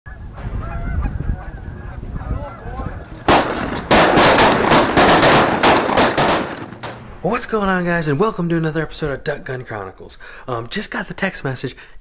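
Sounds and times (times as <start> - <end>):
geese honking: 0.1 - 4.8
shotgun fire: 3.3 - 7.1.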